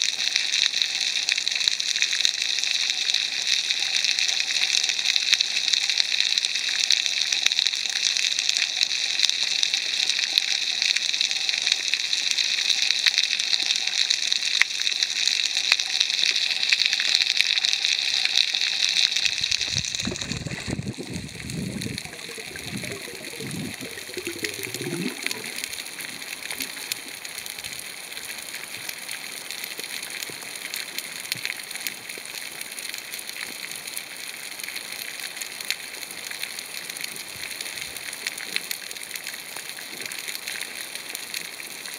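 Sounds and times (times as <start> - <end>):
underwater hiss with crackling: 0.0 - 41.9
low gurgling bubbles: 19.1 - 28.0.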